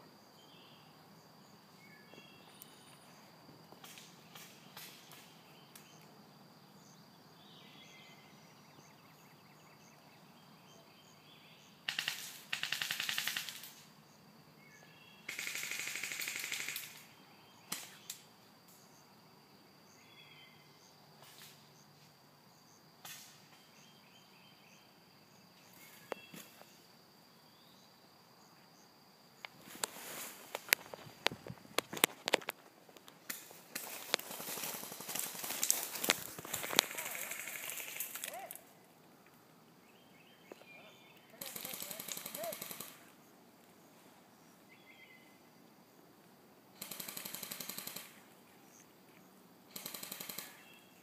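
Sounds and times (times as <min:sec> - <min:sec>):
airsoft guns automatic fire: 0:11.9 - 0:13.8, 0:15.3 - 0:17.1, 0:36.8 - 0:38.2, 0:41.4 - 0:43.0, 0:46.8 - 0:48.2, 0:49.7 - 0:50.7
birds chirping faintly: 0:23.4 - 0:46.2.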